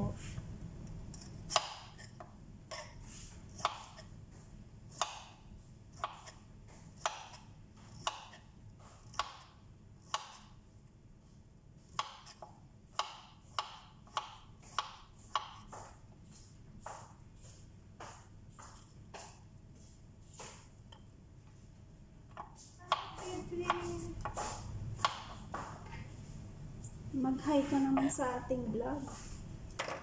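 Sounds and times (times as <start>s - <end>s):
knife cutting on plastic board: 1.2s - 4.1s, 11.9s - 20.7s.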